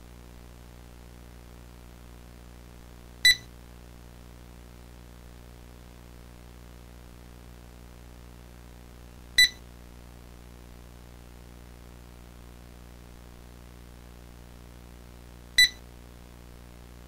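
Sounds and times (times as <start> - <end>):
low hum and hiss: 0.0 - 17.0
short electronic beeps: 3.3 - 3.5, 9.4 - 9.6, 15.6 - 15.8.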